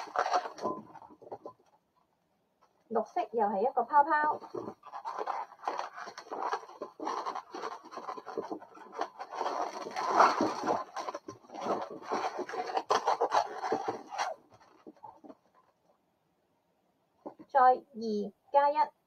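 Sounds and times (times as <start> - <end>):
balloons rubbing and scraping: 0.0 - 1.6, 3.8 - 15.8.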